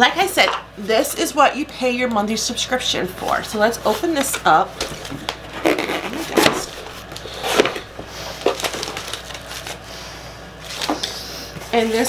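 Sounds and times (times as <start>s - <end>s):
cardboard rustling and crinkling: 3.3s - 9.8s, 10.6s - 12.0s
sharp cardboard cracks: 4.2s - 9.7s.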